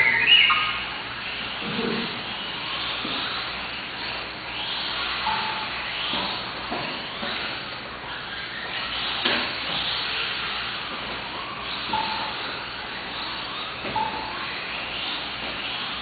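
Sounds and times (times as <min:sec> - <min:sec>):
motor whines rising in pitch: 0:00.0 - 0:16.0
electric toy car motors whirring: 0:01.2 - 0:13.8.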